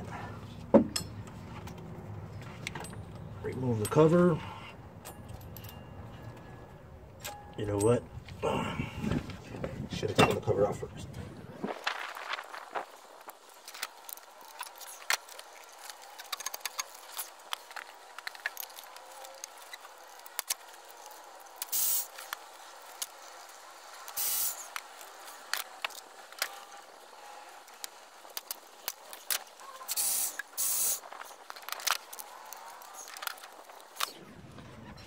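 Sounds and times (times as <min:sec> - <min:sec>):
cordless ratchet whirring: 0:13.4 - 0:34.2.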